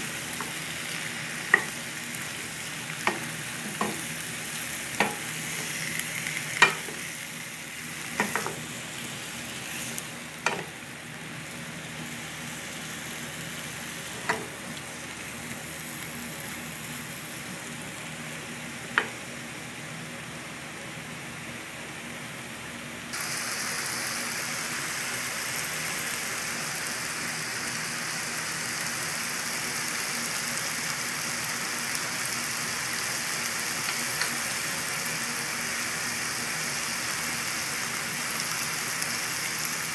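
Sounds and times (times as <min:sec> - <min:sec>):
squash sizzling in pan: 0:00.0 - 0:19.3, 0:23.2 - 0:39.9.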